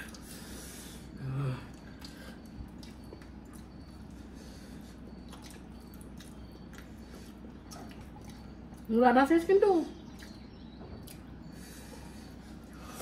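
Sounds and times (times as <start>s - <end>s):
person humming low: 1.2s - 1.8s
chewing and wet mouth clicks: 1.7s - 4.2s, 5.1s - 8.9s, 10.1s - 11.3s.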